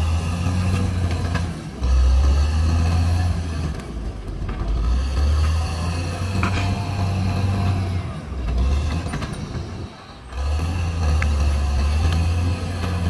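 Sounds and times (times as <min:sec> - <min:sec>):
bulldozer diesel engine drone: 0:00.0 - 0:13.0
faint clanks: 0:06.4 - 0:07.2.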